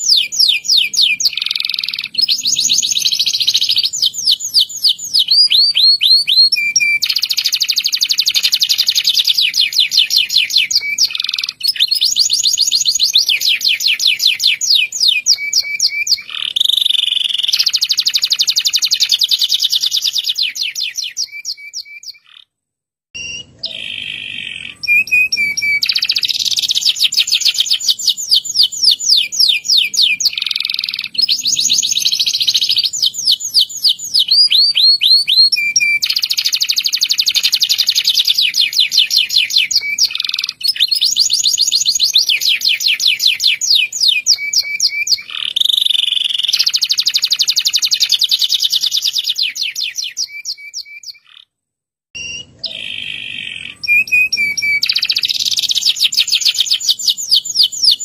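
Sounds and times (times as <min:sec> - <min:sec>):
canary singing trills: 0:00.0 - 0:22.5, 0:23.2 - 0:51.5, 0:52.2 - 0:58.0.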